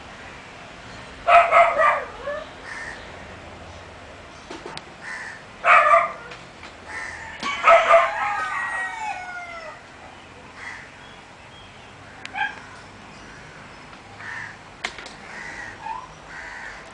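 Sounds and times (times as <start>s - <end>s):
rooster crowing: 6.9s - 9.9s.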